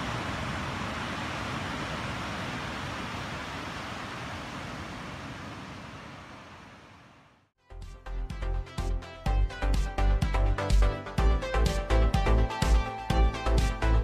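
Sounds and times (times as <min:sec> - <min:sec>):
wind: 0:00.0 - 0:07.5.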